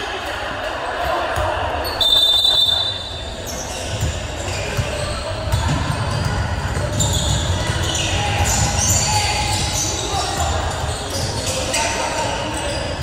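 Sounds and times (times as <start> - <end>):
basketball bouncing on court: 3.7 - 13.0.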